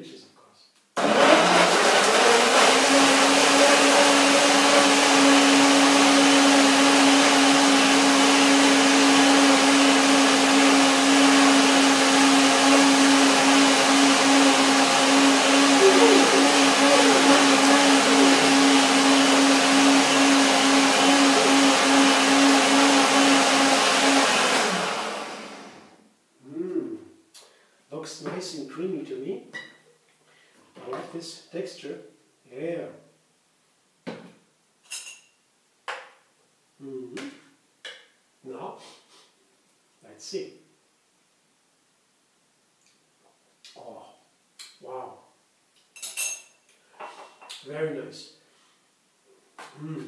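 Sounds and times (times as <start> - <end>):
blender motor running: 1.0 - 26.0.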